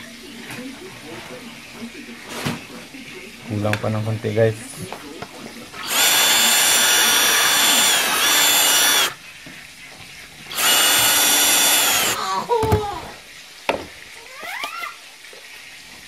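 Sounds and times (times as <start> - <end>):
electric drill whining: 5.8 - 9.2, 10.5 - 12.5.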